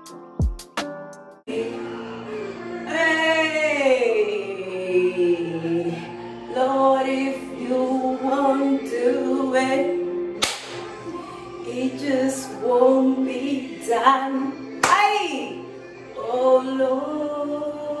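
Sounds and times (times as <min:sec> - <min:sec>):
woman singing: 0:01.5 - 0:18.0
sharp hand claps: 0:10.4 - 0:10.9.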